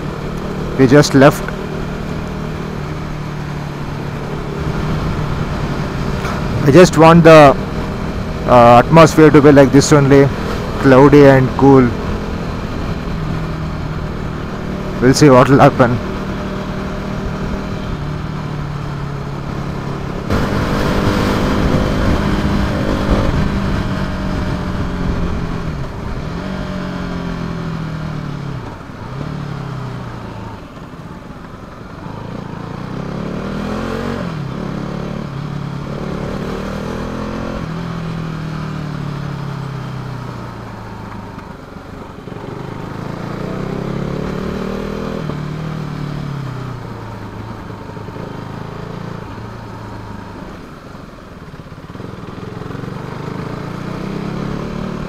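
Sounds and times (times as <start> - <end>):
motorcycle engine revving: 0.0 - 55.0
loud wind rush: 20.3 - 26.6.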